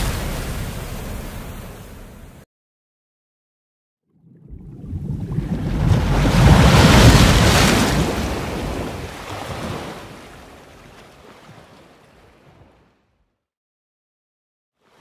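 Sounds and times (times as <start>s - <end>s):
sea water rushing: 4.2s - 12.8s.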